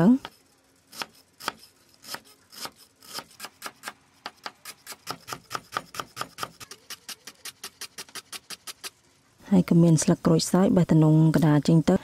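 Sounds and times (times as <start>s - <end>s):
knife chopping on wooden board: 0.2s - 8.8s.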